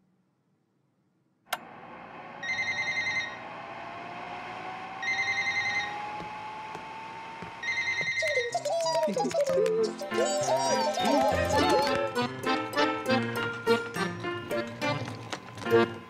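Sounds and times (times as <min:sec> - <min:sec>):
hood hair dryer whirring: 0:01.5 - 0:08.2
telephone ringing: 0:02.4 - 0:03.4.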